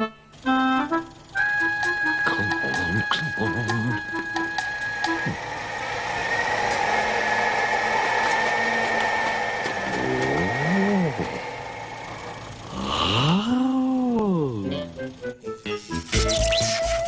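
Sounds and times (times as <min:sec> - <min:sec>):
electric motor whirring: 0:00.4 - 0:17.0
man humming hmm: 0:09.9 - 0:11.4, 0:12.7 - 0:14.8.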